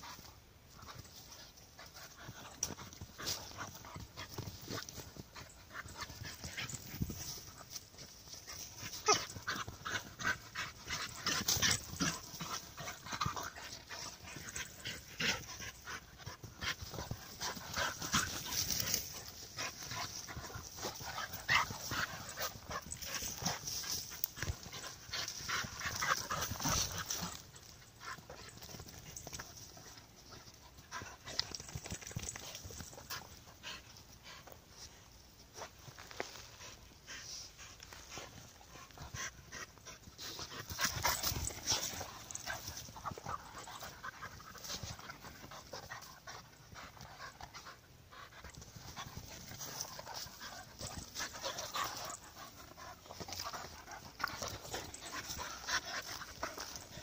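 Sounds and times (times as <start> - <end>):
dogs panting: 0.0 - 57.0
paws scuffling: 0.0 - 57.0.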